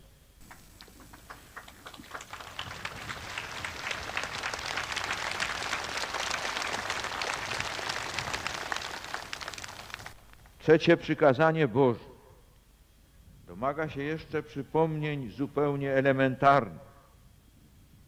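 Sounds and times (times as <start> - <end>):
large crowd applauding: 0.4 - 10.3.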